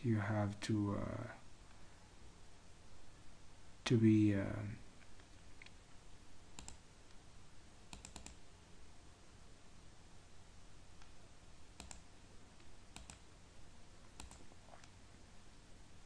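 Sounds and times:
low steady hiss: 0.0 - 16.0
computer mouse double-clicks: 6.6 - 6.8, 7.9 - 8.4, 11.8 - 12.0, 12.9 - 13.2, 14.2 - 14.4.

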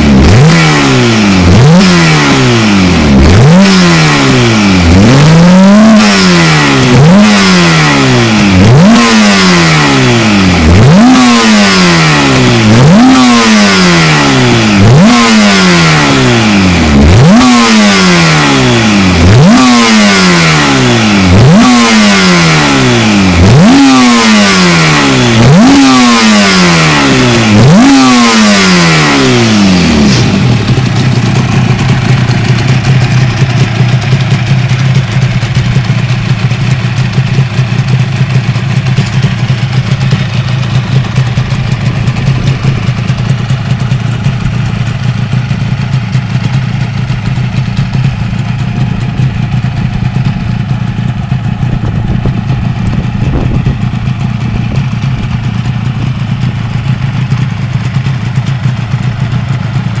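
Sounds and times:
motorcycle engine idling: 0.0 - 60.0.

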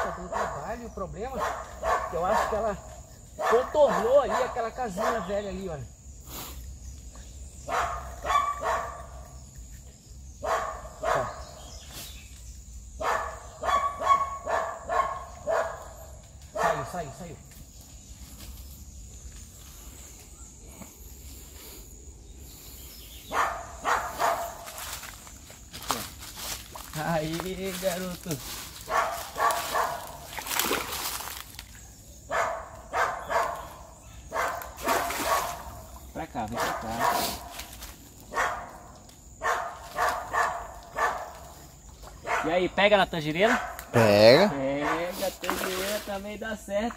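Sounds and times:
dog barking: 0.0 - 2.8, 3.4 - 5.3, 7.7 - 9.2, 10.4 - 11.5, 13.0 - 17.0, 23.3 - 24.7, 28.9 - 30.2, 32.3 - 35.7, 36.5 - 37.5, 38.3 - 38.8, 39.4 - 41.4, 42.2 - 42.6, 43.4 - 43.9, 44.7 - 45.2
fish splashing at the surface: 30.2 - 31.8, 34.8 - 35.7.

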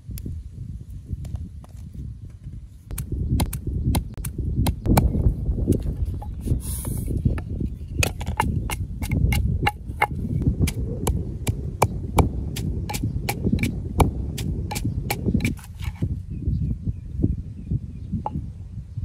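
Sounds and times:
pestle pounding in wooden mortar: 8.0 - 16.0.

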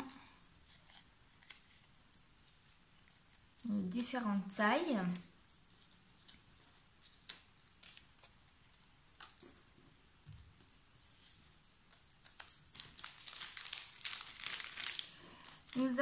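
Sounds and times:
paper rustling: 0.7 - 1.9, 6.1 - 9.4, 11.0 - 16.0.

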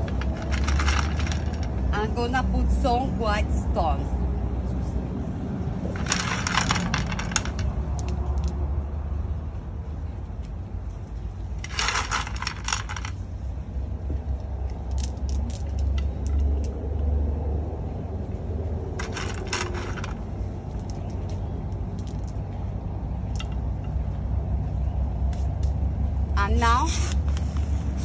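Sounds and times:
pebbles clicking: 0.0 - 1.9, 6.0 - 8.6, 11.6 - 13.2, 14.3 - 16.8, 19.0 - 22.6, 23.2 - 24.0.

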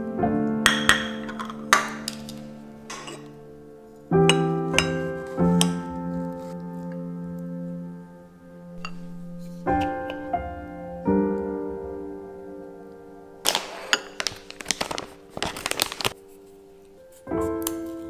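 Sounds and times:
soft piano music: 0.0 - 18.0.

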